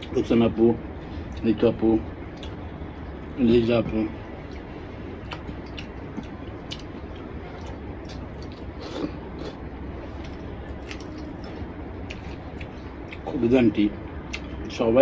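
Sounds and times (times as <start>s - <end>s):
steady low hum: 0.0s - 15.0s
chewing: 2.2s - 3.2s, 4.3s - 13.4s.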